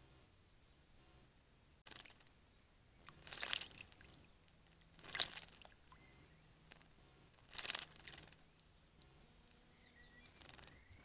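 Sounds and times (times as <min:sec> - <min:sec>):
bird wings fluttering in water: 0:01.8 - 0:02.4, 0:03.0 - 0:06.0, 0:06.6 - 0:08.7, 0:10.2 - 0:11.0.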